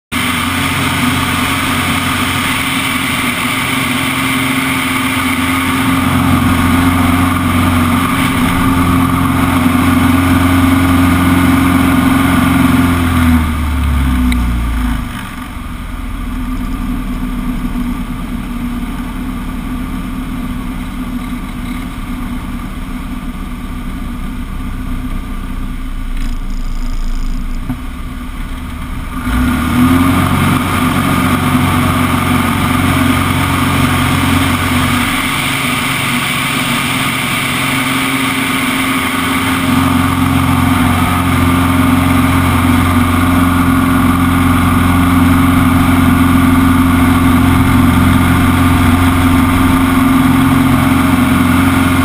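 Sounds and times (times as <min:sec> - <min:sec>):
plane engine and propeller: 0:00.1 - 0:52.0.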